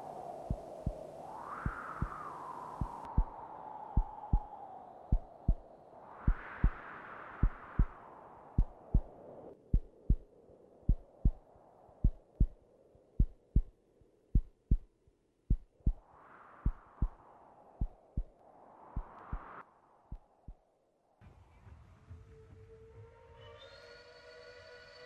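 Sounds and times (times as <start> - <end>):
heartbeat thumps: 2.8 - 3.4, 4.0 - 4.5, 5.1 - 5.6, 6.3 - 6.8, 7.4 - 8.0, 8.6 - 9.1, 9.7 - 10.2, 10.9 - 11.4, 12.0 - 12.6, 13.2 - 13.7, 14.3 - 14.9, 15.5 - 16.0, 16.6 - 17.2, 17.8 - 18.4.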